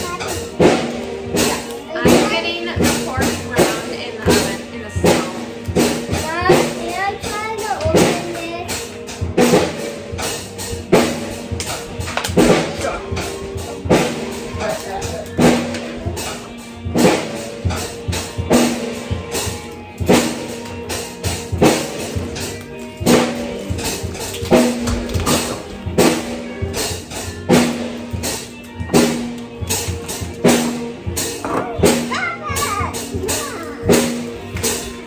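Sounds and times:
drum kit playing: 0.0s - 35.0s.

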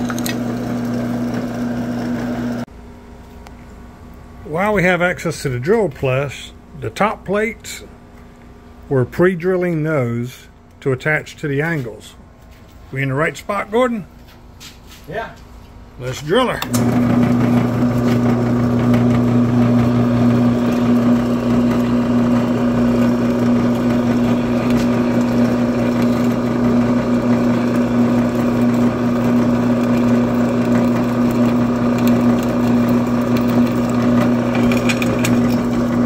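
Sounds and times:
drill press drilling aluminum: 0.0s - 2.6s, 16.6s - 36.0s.

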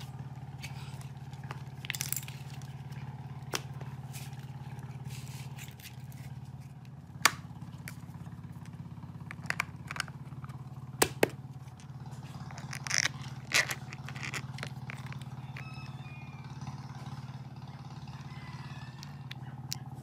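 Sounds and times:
steady low hum: 0.0s - 20.0s
plastic parts clicking and knocking: 8.6s - 11.9s, 12.5s - 15.6s.

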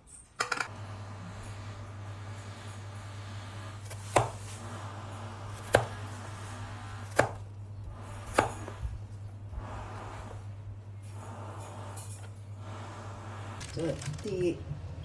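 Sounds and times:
steady low hum: 0.2s - 15.0s
blade chopping onto cutting board: 7.1s - 7.4s.

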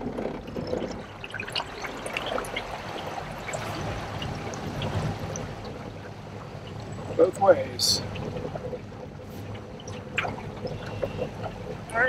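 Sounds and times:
low steady hum: 0.0s - 12.0s
water splashing on metal hull: 0.0s - 12.0s.

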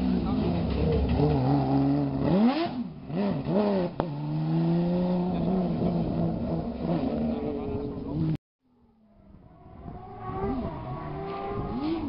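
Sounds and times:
car engine revving: 0.0s - 8.4s, 9.3s - 12.0s.

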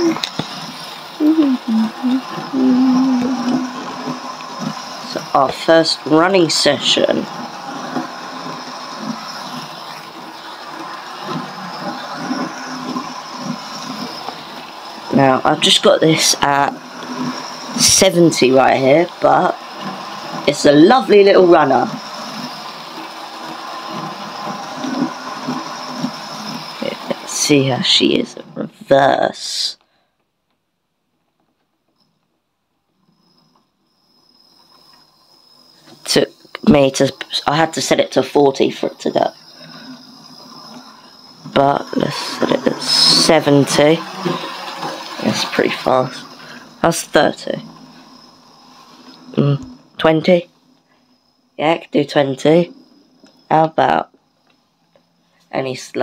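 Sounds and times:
small electric motor whirring: 0.0s - 27.5s, 39.0s - 49.8s
wheels running on metal rails: 0.0s - 29.7s, 34.5s - 50.5s.

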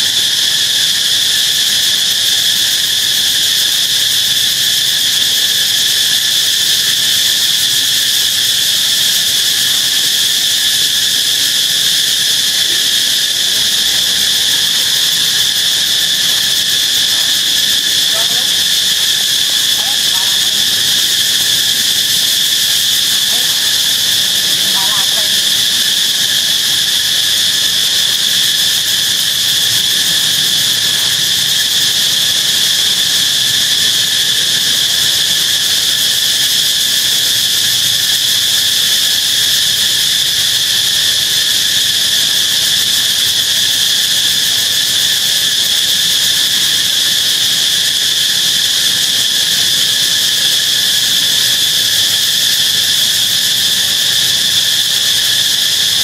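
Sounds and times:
insect chorus drone: 0.0s - 56.0s.

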